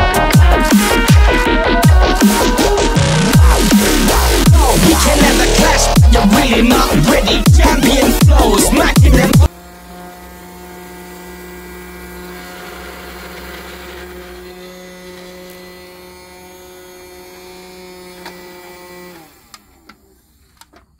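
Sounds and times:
toy vacuum motor humming: 6.4s - 20.9s.

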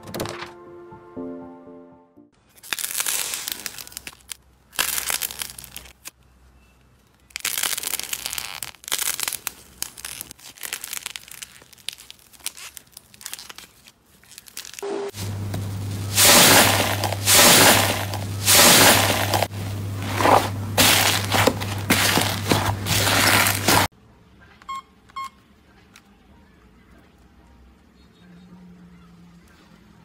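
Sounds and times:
dried clay crackling and tearing: 2.5s - 6.2s, 6.9s - 14.8s, 16.0s - 23.9s.

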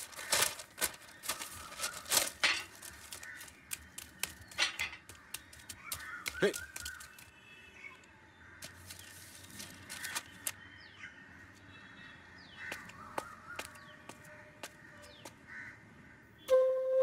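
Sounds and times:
crows cawing: 0.0s - 7.2s, 11.9s - 16.3s
small birds chirping: 0.0s - 16.9s
flute melody: 16.5s - 17.0s.

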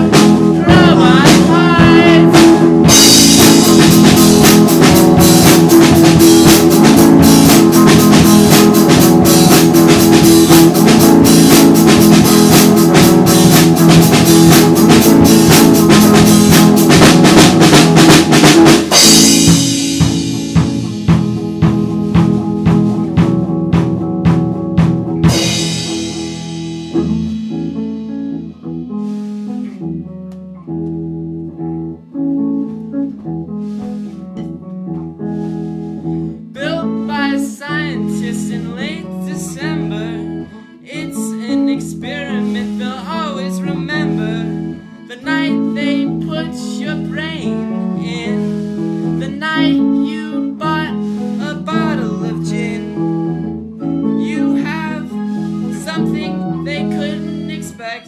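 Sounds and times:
wavering high melody: 0.0s - 4.4s, 18.9s - 21.1s
guitar: 0.0s - 58.0s.

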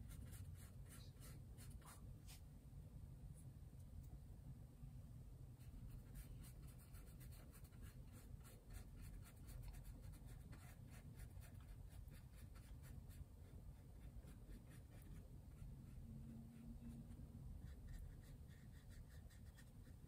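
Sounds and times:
low steady hum: 0.0s - 20.0s
paintbrush scratching on canvas: 5.6s - 20.0s.

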